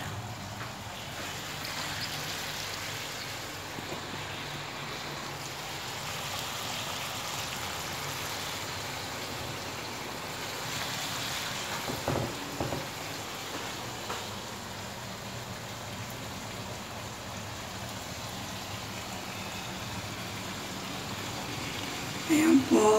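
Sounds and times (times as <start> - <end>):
fish sizzling in a frying pan: 0.8 - 22.9
light knocks: 11.8 - 13.0.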